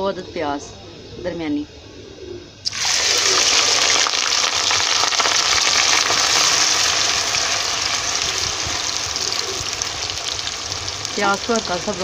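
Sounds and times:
onions sizzling in hot oil: 2.6 - 12.0.

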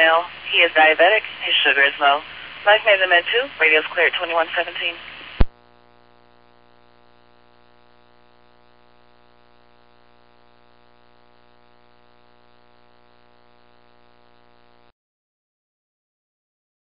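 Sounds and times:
radio scanner hum and hiss: 0.0 - 14.9.

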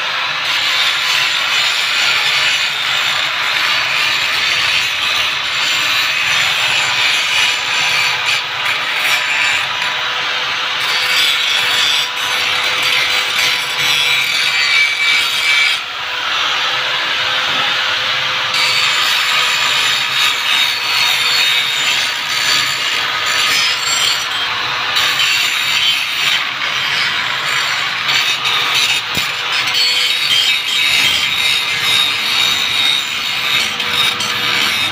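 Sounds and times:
grinder disc scraping metal: 18.6 - 34.9.

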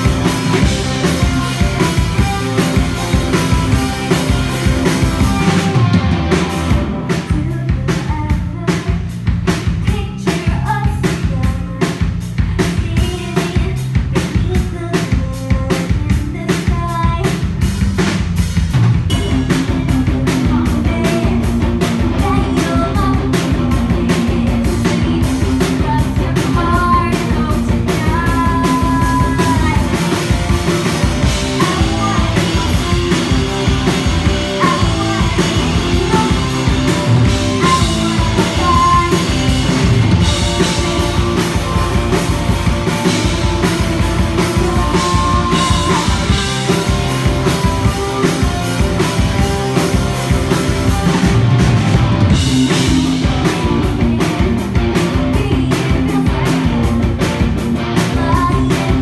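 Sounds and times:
driving drum kit: 0.0 - 59.0
live rock band playing: 0.0 - 59.0
person singing: 19.2 - 30.4, 31.2 - 42.2, 42.8 - 48.8, 52.6 - 57.0, 58.0 - 59.0.

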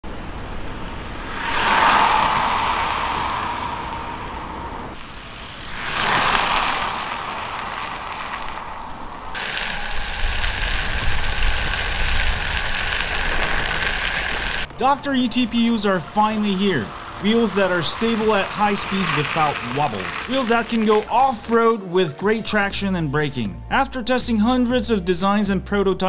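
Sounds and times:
rolling rumble and hiss: 0.1 - 23.5
skateboard wheels rolling: 4.9 - 21.6.

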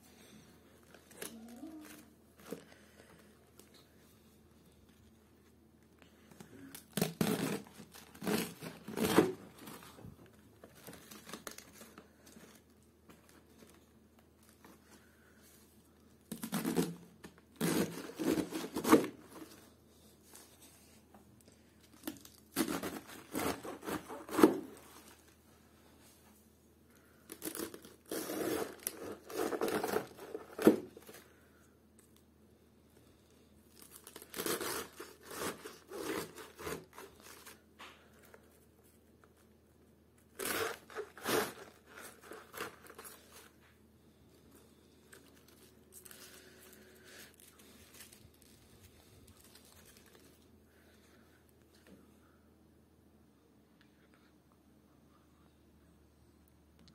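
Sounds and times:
knife cutting cabbage: 6.9 - 9.4, 16.3 - 19.2, 22.2 - 24.8, 27.4 - 31.0, 34.2 - 37.4, 40.3 - 43.2.

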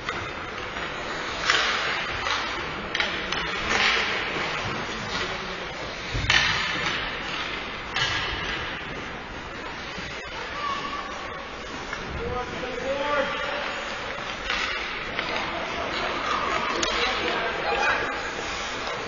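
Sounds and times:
skate blades scraping ice: 9.0 - 19.0.

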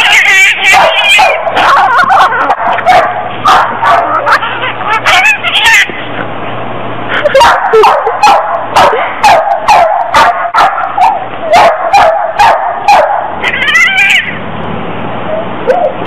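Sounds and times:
dog whining: 0.0 - 6.0, 11.5 - 14.4
dog barking: 0.6 - 4.4, 7.3 - 13.4.

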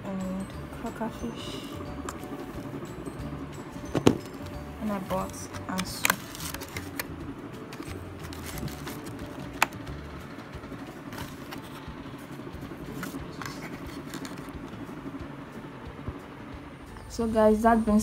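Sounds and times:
plastic bags and foil tray crinkling: 5.1 - 7.1, 7.7 - 9.8, 12.9 - 14.6.

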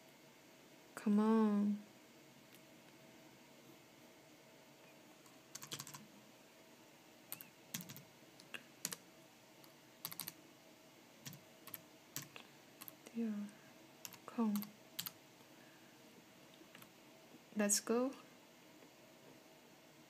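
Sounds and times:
typing on keyboard: 5.2 - 6.0, 7.3 - 8.0, 10.0 - 10.4, 11.2 - 13.0, 14.0 - 15.2.

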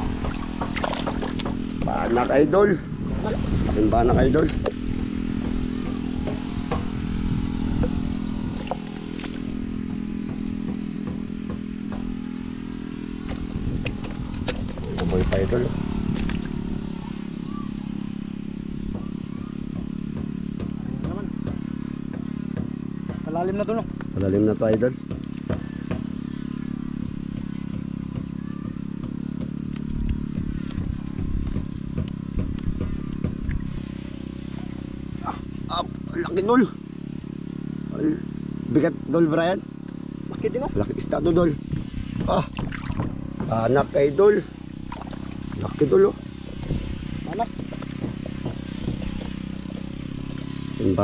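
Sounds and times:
small engine running: 0.0 - 51.0.

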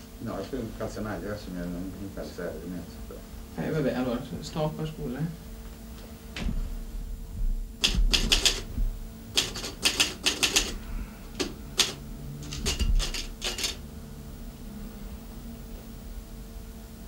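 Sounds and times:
typewriter key clacks: 7.8 - 8.7, 9.4 - 10.7.

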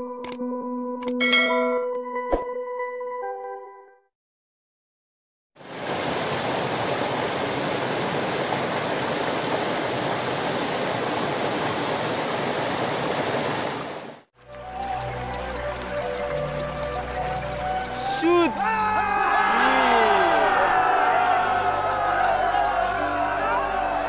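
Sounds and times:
water rushing over rocks: 5.6 - 14.3.

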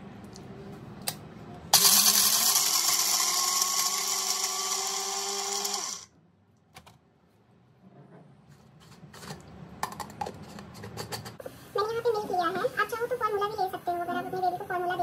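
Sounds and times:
blender motor grinding: 1.8 - 6.1.

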